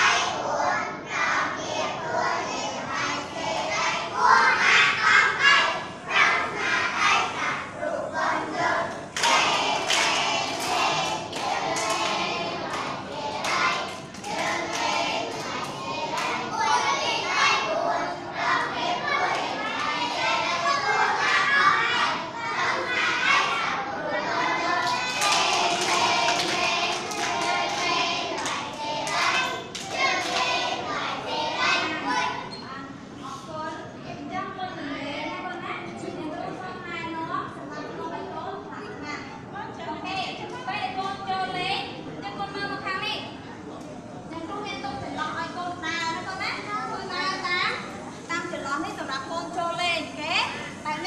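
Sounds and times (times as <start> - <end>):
children chanting: 0.0 - 32.5
rhythmic hand clapping: 9.1 - 17.0, 24.7 - 31.1.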